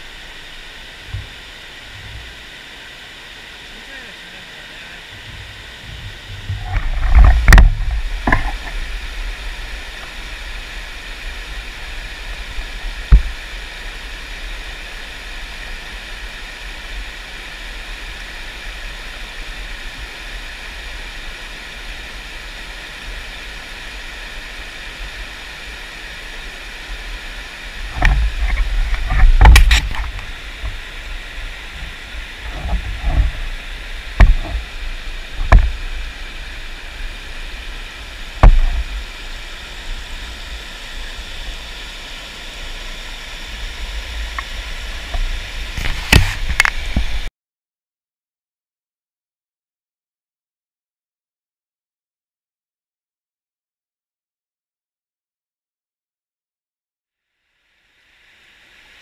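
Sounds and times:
stream rushing over rocks: 0:00.0 - 0:47.3
sharp knocks: 0:38.4 - 0:38.8.

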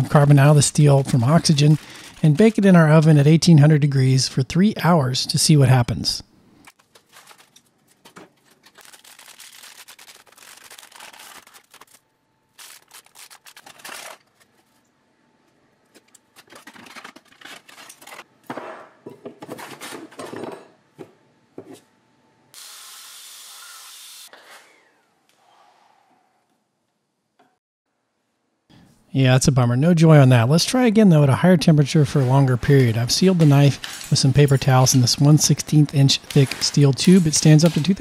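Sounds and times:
workshop handling noises: 0:00.0 - 0:02.7, 0:06.6 - 0:09.0, 0:12.6 - 0:22.0, 0:31.8 - 0:38.0
steel foil crinkling and tearing: 0:01.4 - 0:02.5, 0:06.8 - 0:14.7, 0:16.4 - 0:18.3, 0:36.1 - 0:38.0.

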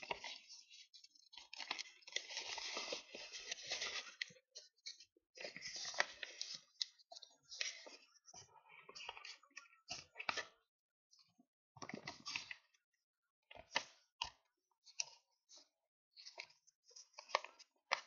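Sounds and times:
sharp paper crackles: 0:00.0 - 0:07.0
paper rustling and crinkling: 0:00.0 - 0:10.6, 0:11.8 - 0:12.7, 0:16.2 - 0:18.0.

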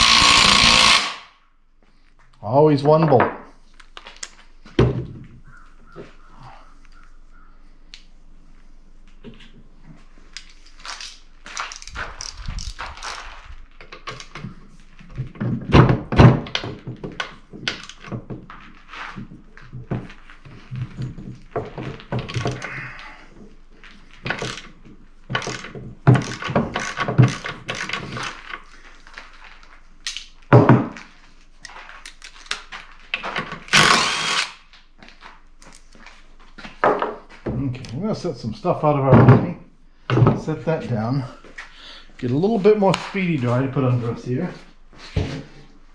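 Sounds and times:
metal knocks and clunks: 0:39.1 - 0:40.6.

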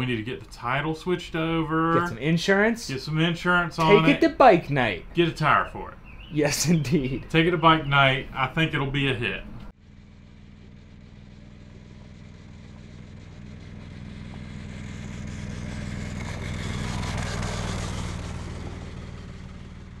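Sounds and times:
motorcycle engine passing by: 0:09.8 - 0:20.0.

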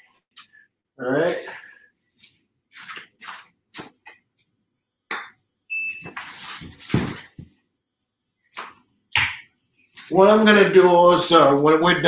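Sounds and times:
rustling and handling noises: 0:02.1 - 0:04.5, 0:06.0 - 0:07.6.

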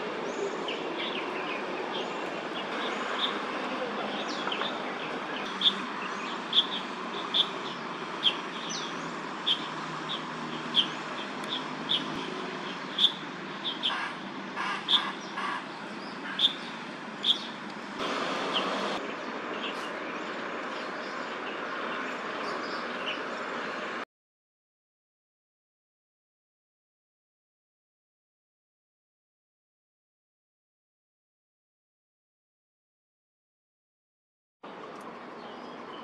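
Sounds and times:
steady background noise: 0:00.0 - 0:24.0.

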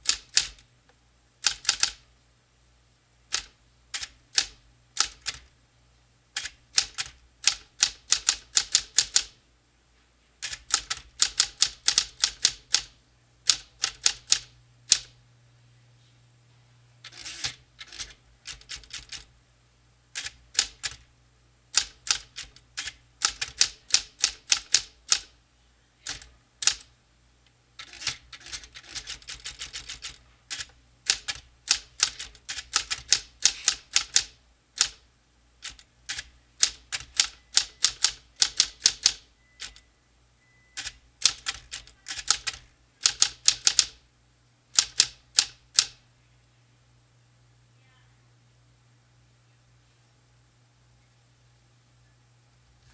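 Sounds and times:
typewriter keystrokes: 0:00.0 - 0:00.6, 0:01.4 - 0:02.0, 0:03.3 - 0:05.5, 0:06.4 - 0:09.4, 0:10.4 - 0:12.9, 0:13.5 - 0:15.2, 0:17.1 - 0:19.3, 0:20.2 - 0:21.0, 0:21.7 - 0:25.3, 0:26.0 - 0:26.9, 0:27.8 - 0:35.0, 0:35.6 - 0:39.8, 0:40.8 - 0:44.0, 0:44.8 - 0:46.0
steady low hum: 0:00.0 - 0:24.2.

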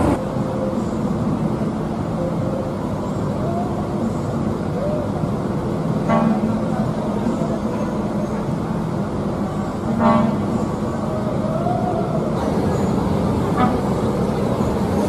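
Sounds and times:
bus engine rumble: 0:00.0 - 0:15.0
bus horn toot: 0:06.0 - 0:06.6, 0:10.0 - 0:10.6, 0:13.5 - 0:14.0.

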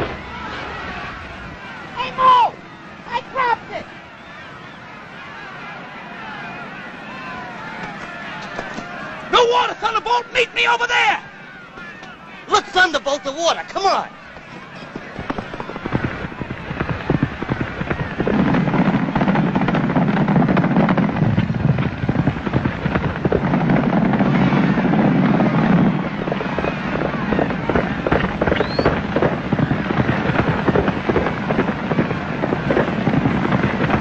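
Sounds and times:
rising whistle: 0:03.8 - 0:05.5, 0:28.5 - 0:29.0
horses galloping on dirt: 0:11.5 - 0:34.0.

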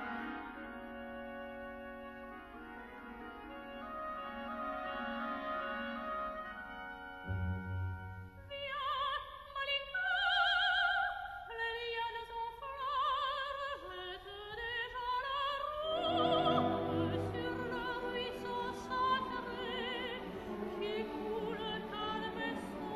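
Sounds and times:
instrumental accompaniment: 0:05.8 - 0:08.5
operatic singing voice: 0:08.8 - 0:22.9.

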